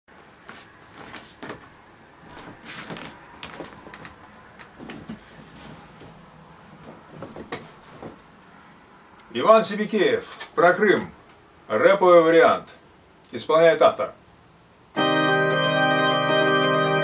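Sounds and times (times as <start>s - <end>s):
person sitting in armchair: 0.4s - 8.4s.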